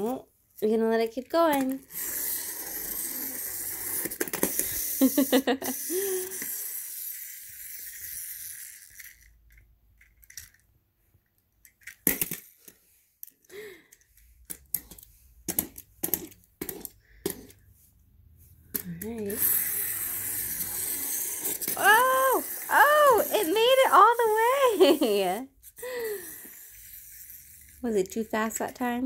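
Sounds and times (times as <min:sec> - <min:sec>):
toy being handled clicks: 0:01.5 - 0:10.6, 0:11.6 - 0:17.6, 0:18.7 - 0:29.0
wind-up toy motor whirring: 0:01.5 - 0:10.6, 0:18.7 - 0:29.0.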